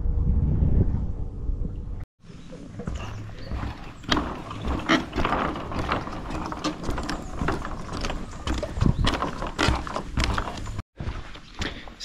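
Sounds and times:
footsteps on wooden planks: 2.7s - 12.0s
wooden boards clattering: 2.9s - 10.8s.

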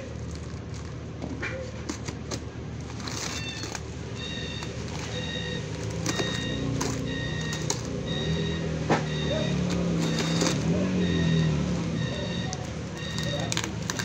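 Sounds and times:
box cutter slicing tape and cardboard: 8.9s - 11.0s.

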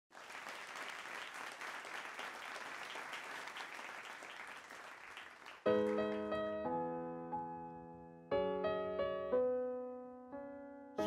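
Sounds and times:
audience applauding: 0.1s - 6.3s
piano chord ringing: 5.7s - 11.0s.

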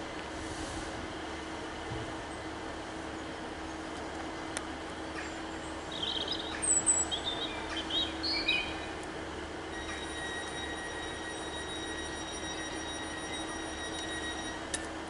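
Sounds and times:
idling train hum: 0.0s - 15.0s
small birds chirping: 5.0s - 9.0s
thin high steady tone: 9.7s - 14.7s.

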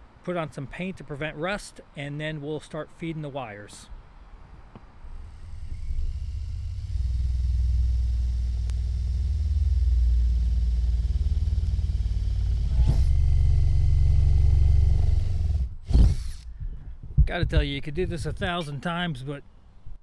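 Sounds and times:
drill squeal: 5.1s - 15.6s
drill boring into sheet metal: 5.1s - 16.4s.

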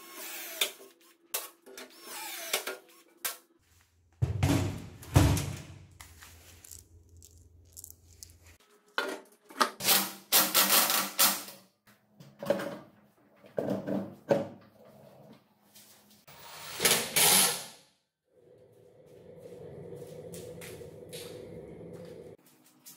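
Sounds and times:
metal tools clinking: 6.5s - 8.6s.

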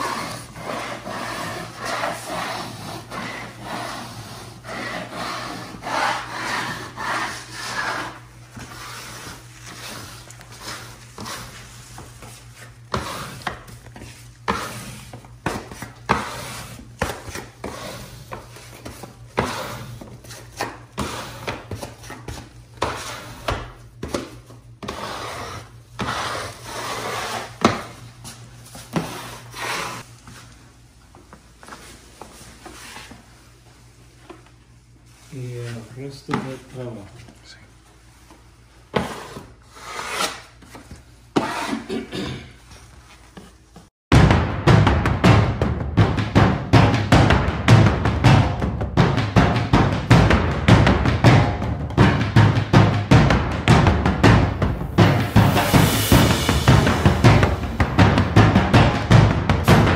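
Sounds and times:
steady low hum: 44.1s - 59.9s.

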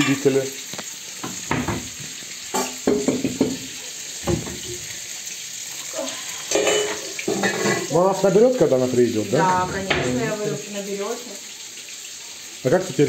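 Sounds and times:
knocks and scrapes on saucepan: 1.2s - 2.0s, 2.6s - 4.8s.

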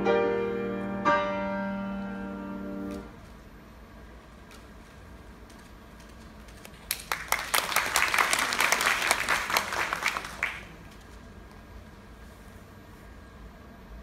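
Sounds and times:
audience applauding: 6.6s - 11.0s.

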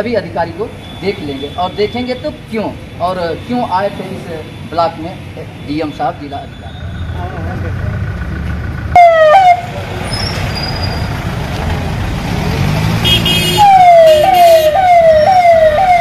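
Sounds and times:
engine rumble: 6.9s - 16.0s
vehicle siren: 8.9s - 9.7s, 13.6s - 16.0s.

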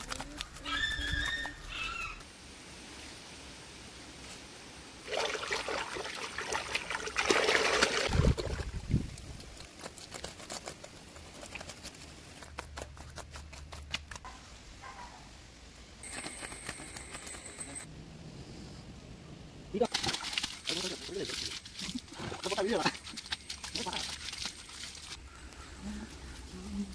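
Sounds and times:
mud and water splashing: 5.0s - 14.2s, 19.8s - 25.3s
wooden scraper on wet mud: 9.2s - 14.3s.

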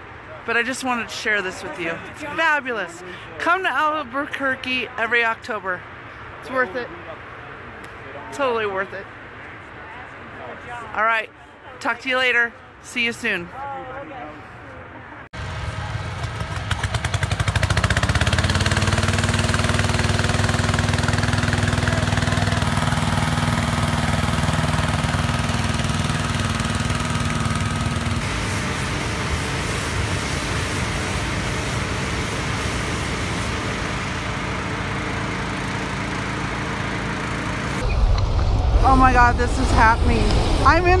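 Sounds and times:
engine-driven inflator fan blowing: 15.4s - 40.8s.

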